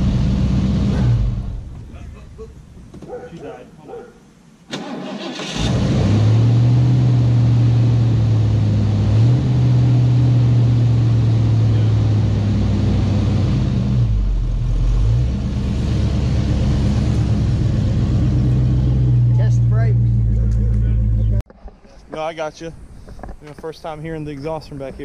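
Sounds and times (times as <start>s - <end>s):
car engine idling: 6.4s - 21.4s.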